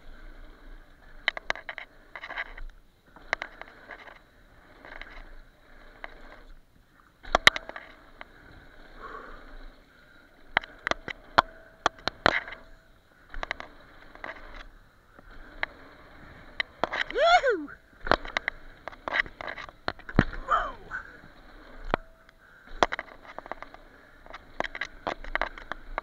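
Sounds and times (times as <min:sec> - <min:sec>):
bike clacking and rattling: 0:17.9 - 0:26.0.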